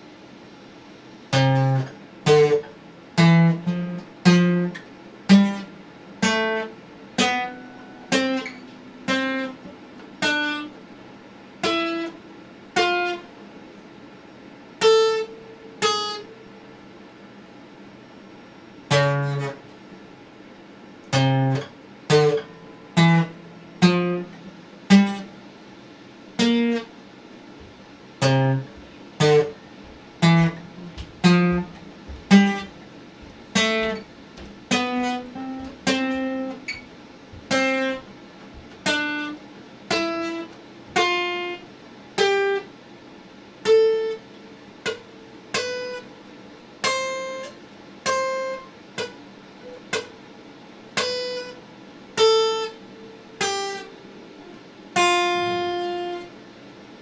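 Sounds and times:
acoustic guitar plucked slowly: 0:01.3 - 0:10.8, 0:11.6 - 0:13.3, 0:14.8 - 0:16.4, 0:18.8 - 0:19.7, 0:21.1 - 0:25.4, 0:26.4 - 0:26.9, 0:27.6 - 0:41.6, 0:42.2 - 0:42.7, 0:43.6 - 0:46.1, 0:46.8 - 0:50.2, 0:51.0 - 0:51.6, 0:52.2 - 0:56.4.

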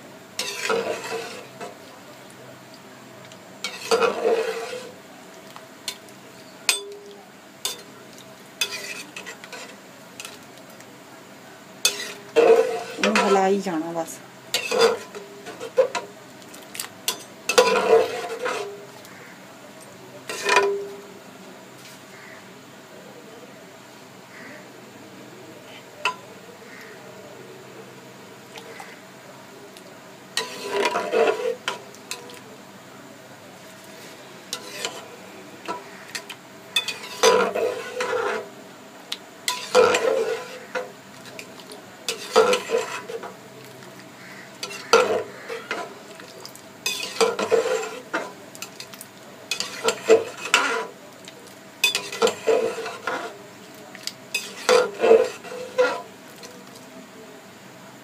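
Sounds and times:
metal spoon stirring in metal pot: 0:00.4 - 0:02.4, 0:03.2 - 0:10.9, 0:11.8 - 0:19.2, 0:20.2 - 0:20.9, 0:30.3 - 0:32.5, 0:33.6 - 0:38.5, 0:39.4 - 0:56.8.

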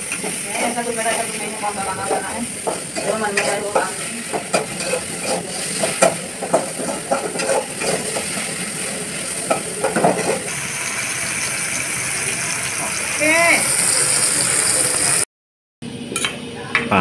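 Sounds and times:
vegetables sizzling in oil: 0:00.0 - 0:15.2
metal spoon scraping a wok: 0:00.1 - 0:10.5.

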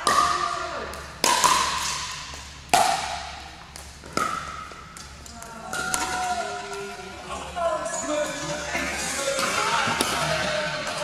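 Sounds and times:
paddle hitting plastic ball: 0:00.0 - 0:06.8
players' voices: 0:05.2 - 0:11.0.

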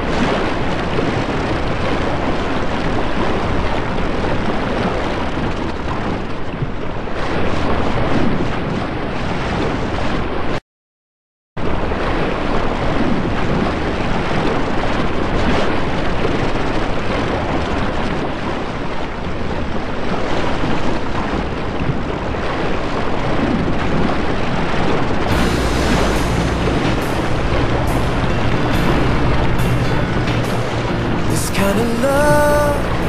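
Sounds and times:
loud rushing noise: 0:25.3 - 0:33.0.

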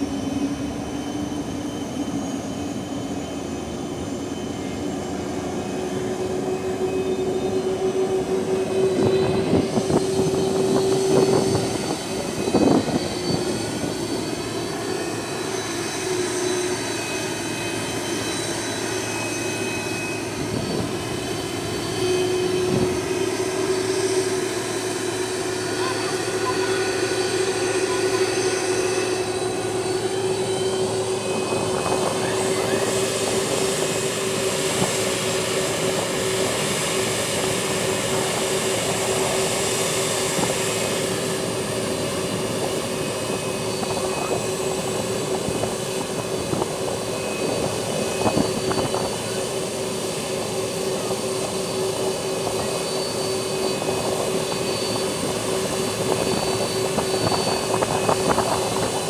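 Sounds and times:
jet engines whining while taxiing: 0:00.0 - 0:59.0.

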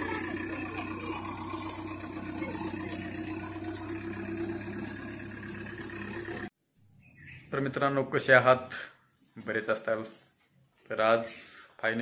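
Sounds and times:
diesel engine running under load: 0:00.0 - 0:06.5.

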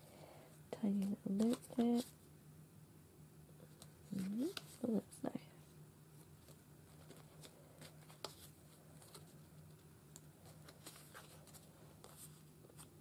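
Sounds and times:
low steady hum: 0:00.0 - 0:13.0
paper cards being shuffled: 0:00.9 - 0:02.2, 0:03.7 - 0:05.1, 0:06.3 - 0:09.8, 0:10.4 - 0:13.0.

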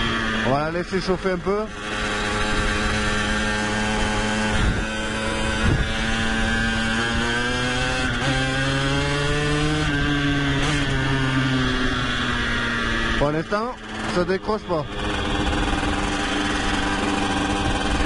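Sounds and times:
two-stroke motorcycle engine: 0:00.0 - 0:18.0
wind rushing over microphone: 0:02.3 - 0:12.6.

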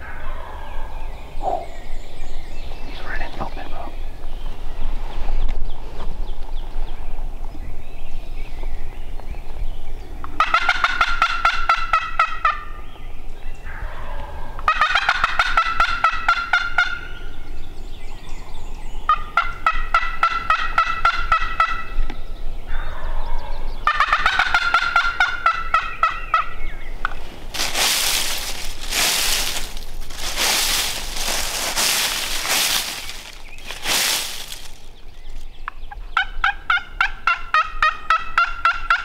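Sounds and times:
turkey gobbling: 0:10.4 - 0:12.7, 0:13.8 - 0:17.1, 0:19.1 - 0:21.9, 0:23.9 - 0:26.6, 0:36.2 - 0:39.0.

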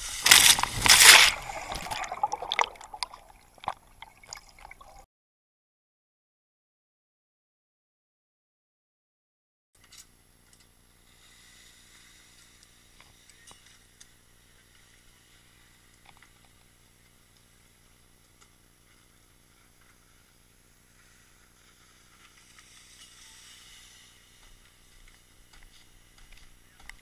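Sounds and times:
faint steady hiss: 0:09.8 - 0:27.0.

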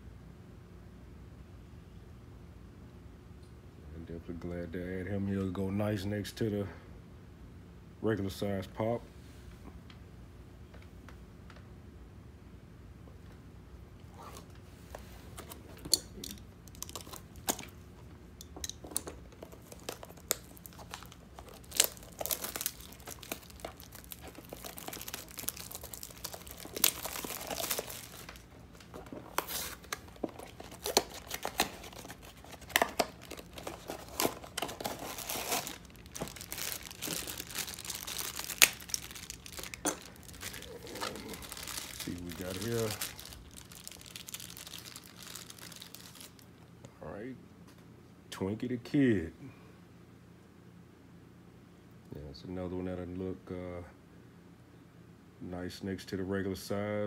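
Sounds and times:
packaging tearing and crinkling: 0:16.1 - 0:17.7, 0:18.6 - 0:46.5.

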